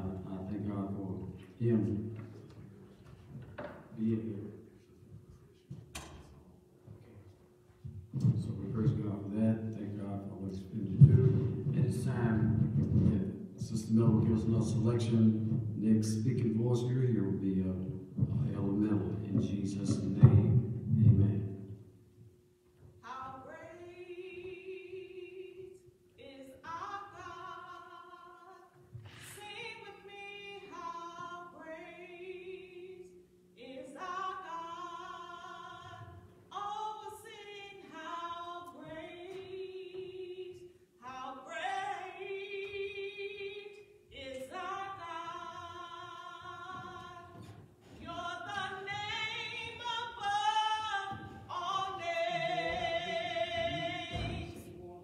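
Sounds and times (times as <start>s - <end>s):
woman singing gospel solo: 23.0s - 54.8s.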